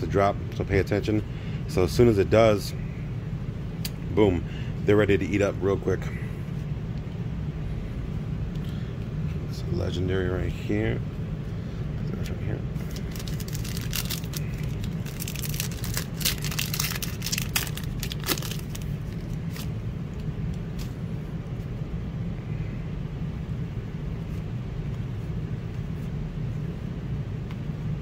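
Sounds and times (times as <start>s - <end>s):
steady low hum: 0.0s - 28.0s
foil wrapper crinkling: 12.8s - 19.8s.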